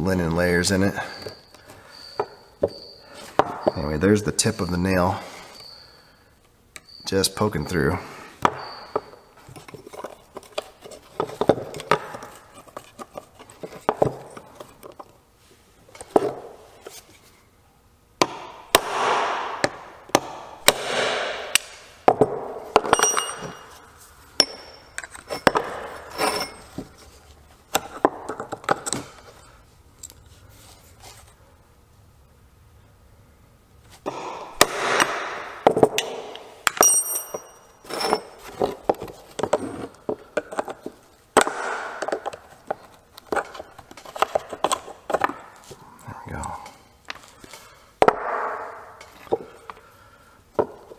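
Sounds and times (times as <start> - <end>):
metal tools clinking: 22.8 - 27.1, 36.7 - 38.8.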